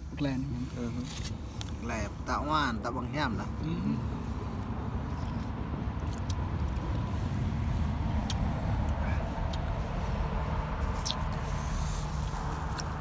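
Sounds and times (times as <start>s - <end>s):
steady low rumble: 0.0s - 13.0s.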